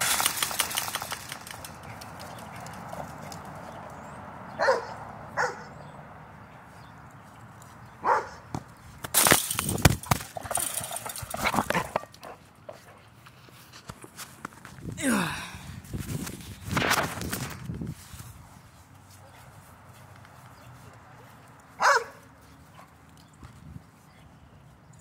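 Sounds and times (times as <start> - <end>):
dog barking: 4.6 - 5.8, 8.0 - 8.4, 21.8 - 22.2
thumps and scuffling: 8.5 - 12.1.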